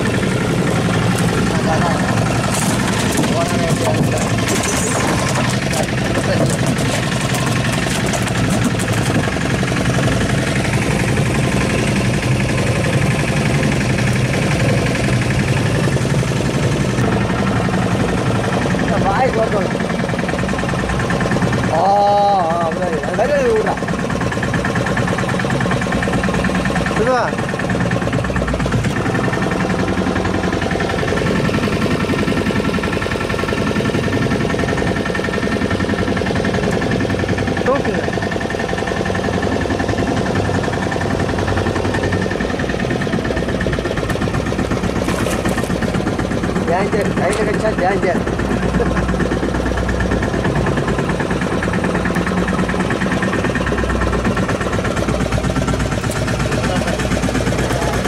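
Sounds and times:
boat engine running: 0:00.0 - 0:58.0.

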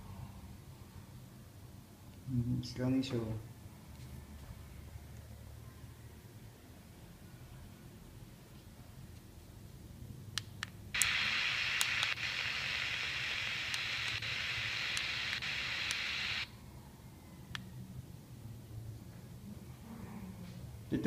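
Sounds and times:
sharp clicks: 0:10.4 - 0:16.4
radio static hiss: 0:11.0 - 0:16.5.

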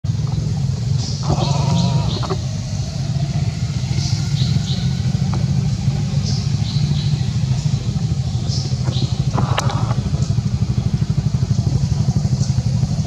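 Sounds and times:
low hum: 0:00.1 - 0:13.0
baby monkey cry: 0:01.2 - 0:02.4.

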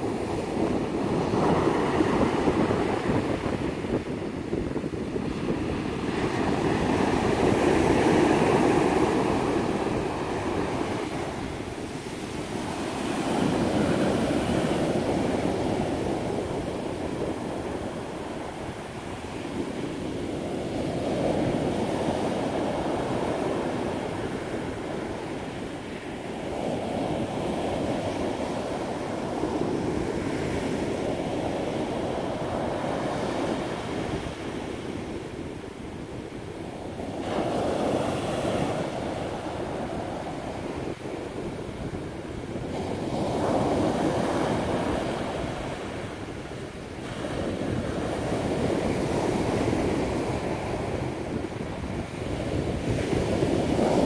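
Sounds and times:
surf breaking on beach: 0:00.0 - 0:35.8.

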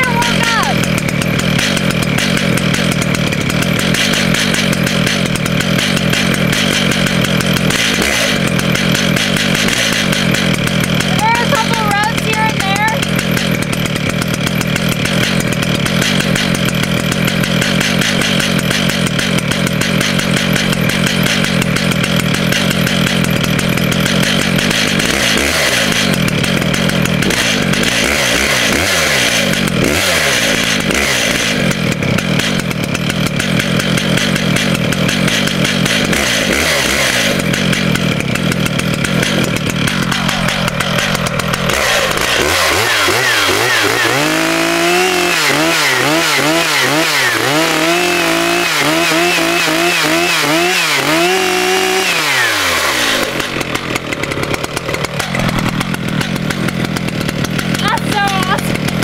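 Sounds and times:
chainsaw cutting wood: 0:00.0 - 0:59.0.

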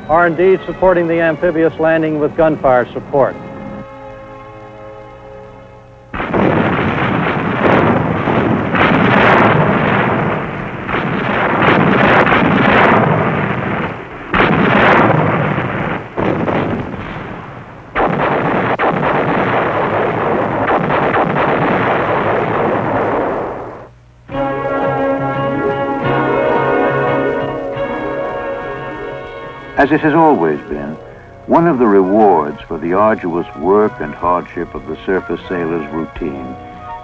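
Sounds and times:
shells exploding: 0:06.1 - 0:31.8
heavy gun blasts: 0:06.2 - 0:31.6.

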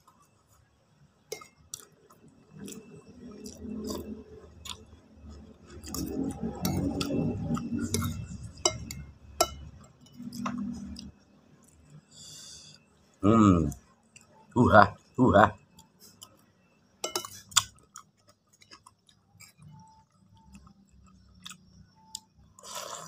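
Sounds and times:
person chewing noodles: 0:01.6 - 0:09.0, 0:10.1 - 0:14.4, 0:15.6 - 0:16.5, 0:17.2 - 0:23.0.

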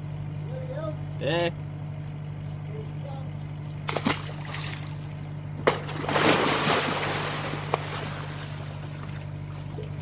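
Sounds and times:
fish splashing at water surface: 0:03.8 - 0:10.0
boat engine idling: 0:06.9 - 0:10.0.

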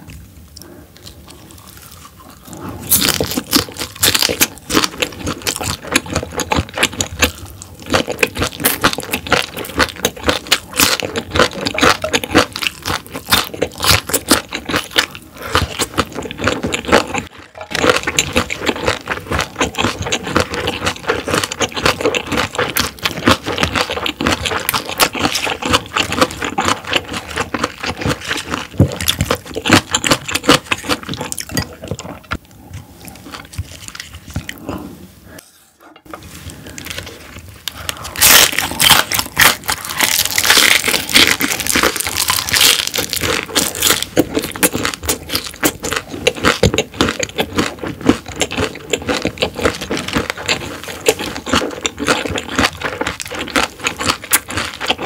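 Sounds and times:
chewing crunchy food: 0:00.0 - 0:55.0.

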